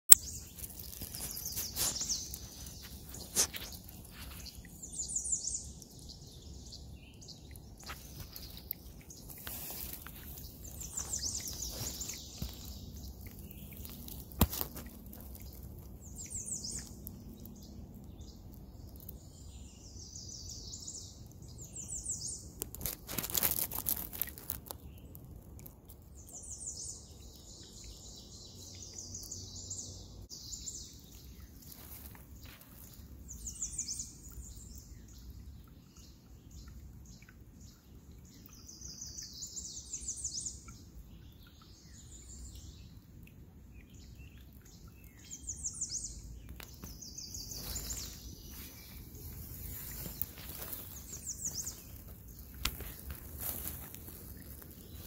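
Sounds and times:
rustling noise: 0.1 - 4.9, 7.8 - 16.9, 22.6 - 25.5, 31.1 - 33.8, 46.5 - 55.0
songbirds singing: 0.1 - 55.0.

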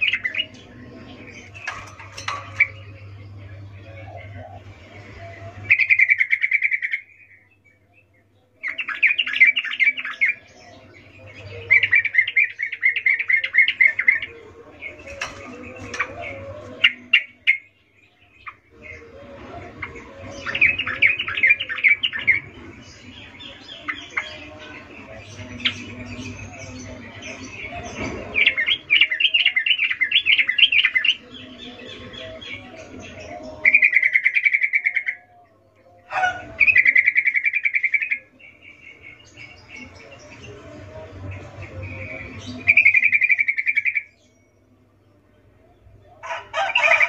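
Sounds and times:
bird chattering song: 0.0 - 47.0.

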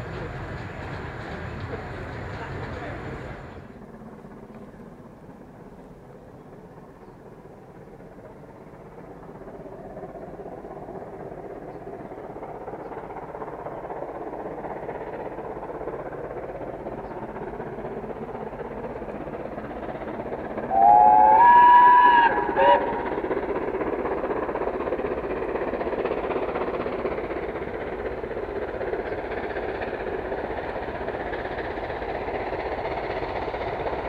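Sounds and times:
steam locomotive running: 0.0 - 34.0
steam locomotive whistle: 20.7 - 23.3.

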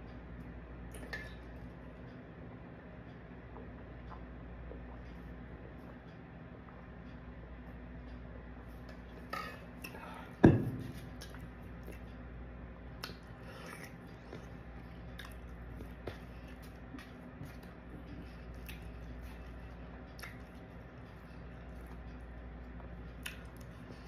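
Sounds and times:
chewing: 11.0 - 12.2, 12.9 - 24.0.

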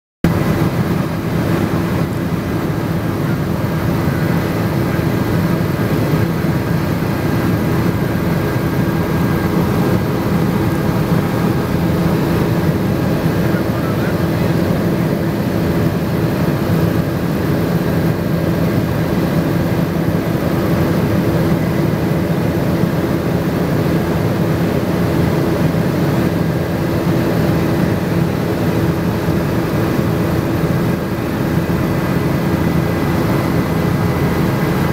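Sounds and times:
helicopter engine and rotor: 0.2 - 34.9.

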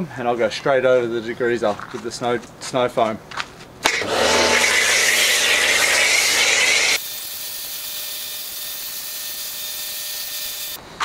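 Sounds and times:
pressure washer motor humming: 3.9 - 7.0
loud hiss of spray: 4.0 - 10.8.

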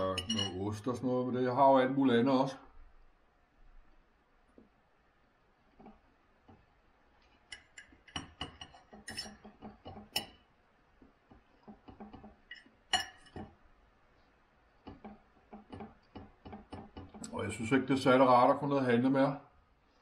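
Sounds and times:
knife and fork clinking on plate: 0.0 - 0.6, 7.4 - 10.4, 12.5 - 13.5.

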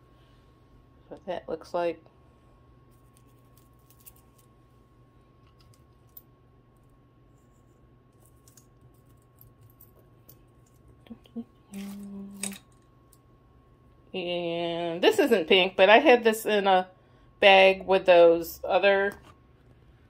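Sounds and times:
low room hum: 0.0 - 20.0
woman humming: 11.0 - 12.6.

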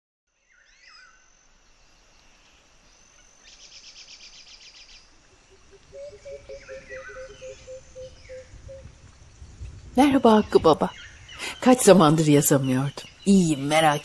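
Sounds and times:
high insect buzz: 0.4 - 10.2
birds calling: 1.9 - 14.0
low pulsing calls: 2.0 - 14.0.

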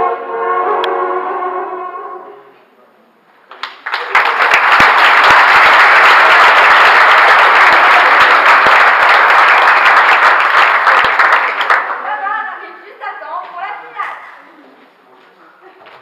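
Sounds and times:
audience applauding: 3.5 - 12.2.

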